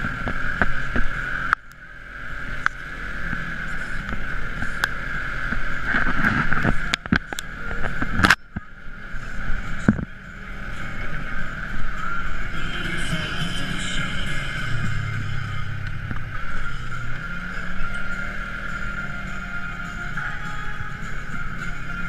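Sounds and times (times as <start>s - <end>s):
off-road vehicle engine running: 0.0s - 22.0s.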